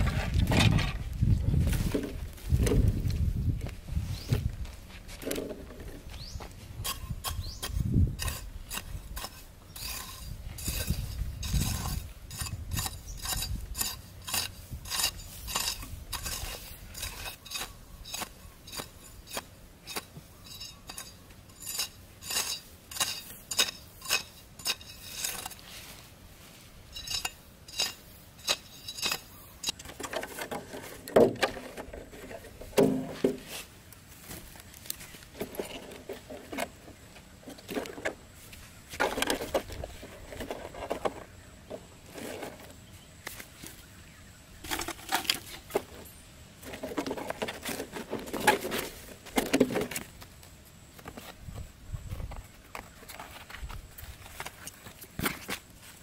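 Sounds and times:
hands brushing dirt: 1.1s - 29.8s, 32.1s - 41.3s.

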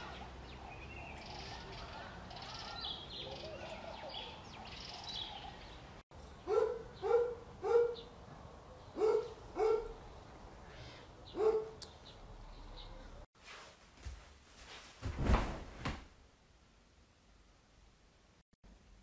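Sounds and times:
dog barking: 6.4s - 8.1s, 9.0s - 10.0s, 11.3s - 11.8s.

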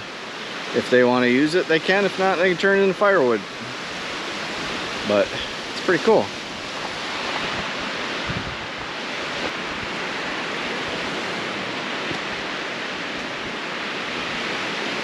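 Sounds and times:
lake waves washing on shore: 0.0s - 15.0s
wind: 0.0s - 15.0s.

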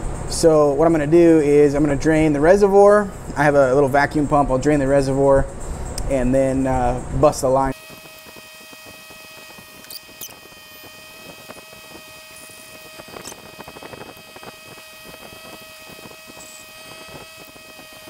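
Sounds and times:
faint steady whine: 0.0s - 18.0s
hand pump squeaks and clicks: 7.8s - 18.0s.

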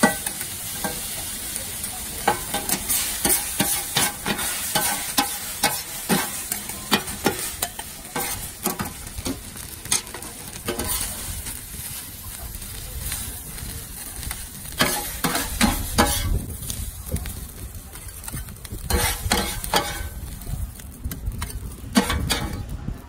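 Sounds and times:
noodles sizzling on griddle: 0.0s - 23.0s
metal spatulas scraping: 2.2s - 9.1s, 10.0s - 11.3s, 14.8s - 16.4s, 18.9s - 20.2s, 22.0s - 22.6s.

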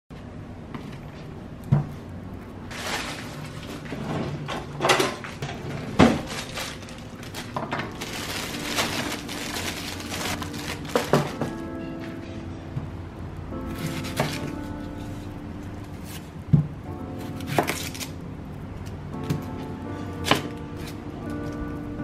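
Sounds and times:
low steady hum: 0.2s - 22.0s
plastic rustling: 2.6s - 11.8s.

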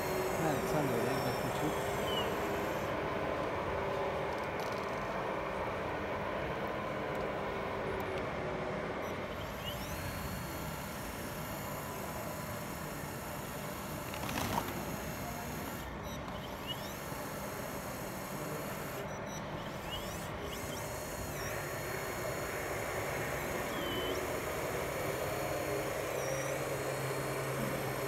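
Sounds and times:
electric motors and servos whining: 0.0s - 8.3s, 8.9s - 28.0s
steady background noise: 0.0s - 28.0s.

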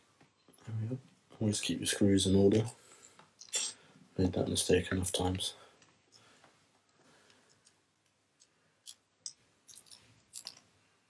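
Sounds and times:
small metal parts clicking: 8.4s - 10.7s.

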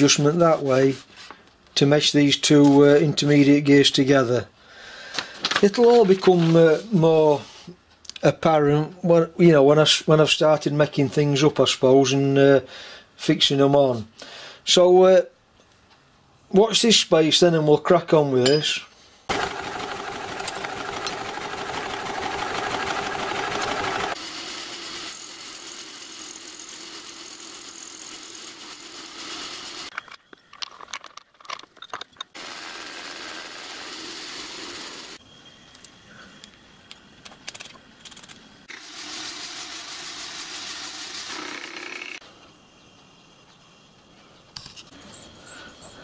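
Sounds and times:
milling machine cutting metal: 19.3s - 29.9s.

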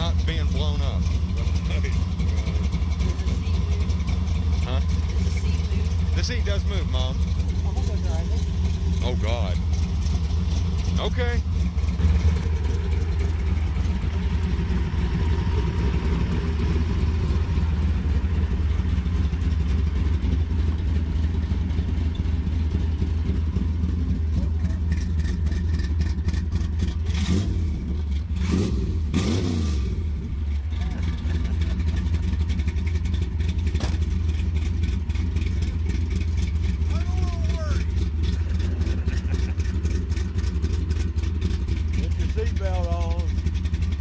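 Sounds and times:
car engine idling: 0.0s - 44.0s
sharp knocks and creaks: 33.7s - 34.2s.

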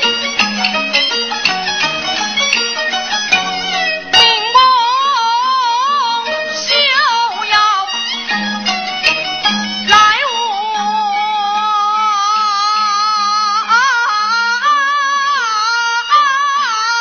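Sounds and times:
instrumental accompaniment: 0.0s - 17.0s
opera singing: 4.2s - 8.1s, 9.9s - 17.0s.

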